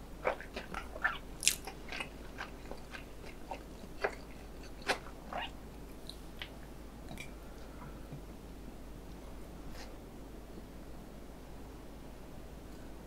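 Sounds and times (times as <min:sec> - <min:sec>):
wet chewing mouth smacks: 0:00.2 - 0:05.4.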